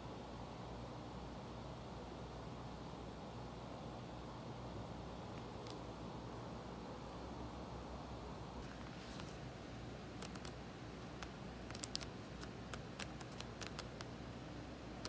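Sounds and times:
book pages flipping: 8.6 - 9.4, 11.1 - 14.1
typing on laptop keyboard: 10.2 - 14.1.

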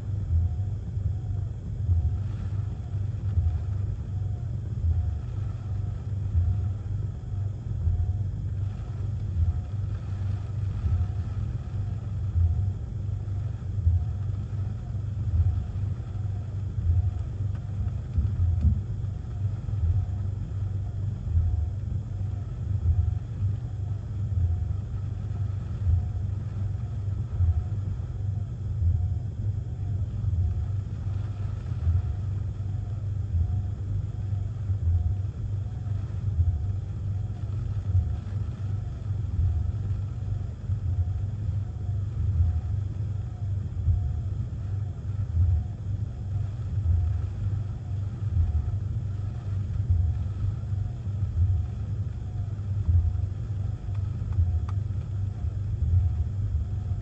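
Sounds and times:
wind and rain rumble: 1.4 - 57.0.

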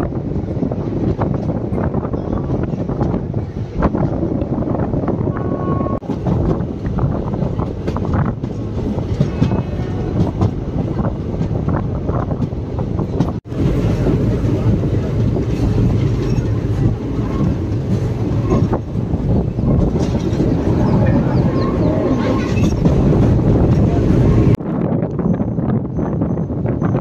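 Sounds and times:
wind rushing past doorway: 0.0 - 27.0
train wheels clattering over rails: 6.0 - 24.6.

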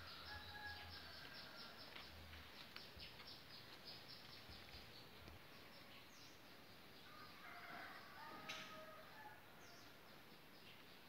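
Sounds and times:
low steady background noise: 0.0 - 11.0.

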